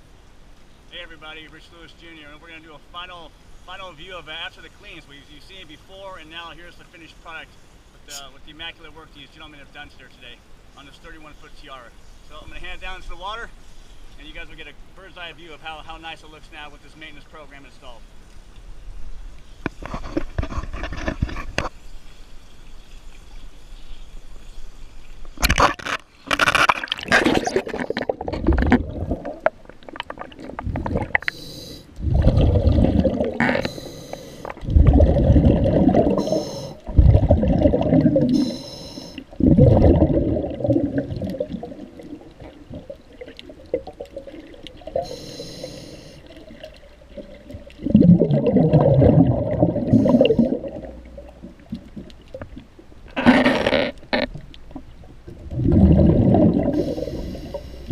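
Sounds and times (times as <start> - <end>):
splashing into water: 25.4 - 31.3
underwater regulator bubbling: 25.4 - 57.9.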